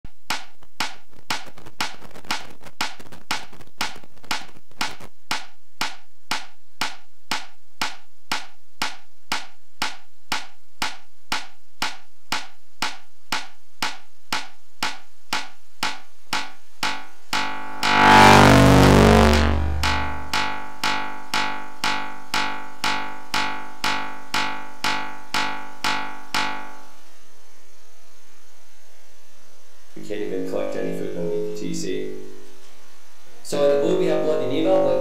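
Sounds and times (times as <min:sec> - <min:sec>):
metronome clicks: 0:00.3 - 0:18.5, 0:19.1 - 0:26.9
loud low humming tone: 0:16.8 - 0:21.0
faint hiss: 0:26.9 - 0:35.0.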